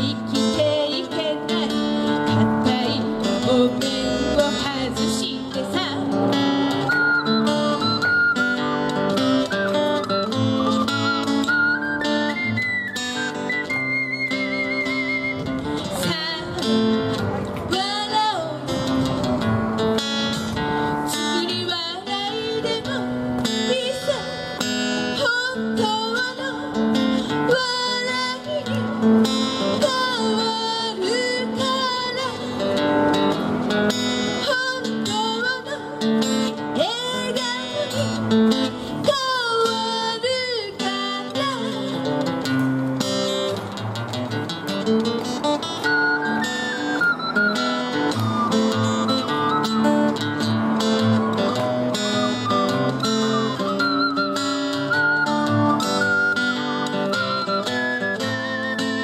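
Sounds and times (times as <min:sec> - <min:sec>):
woman singing: 0:00.0 - 0:06.9, 0:15.8 - 0:17.1, 0:17.7 - 0:18.9, 0:21.1 - 0:33.1, 0:34.3 - 0:42.2
acoustic guitar strumming chords: 0:00.0 - 0:59.0
ocarina note with wavering pitch: 0:06.4 - 0:16.8, 0:45.7 - 0:59.0.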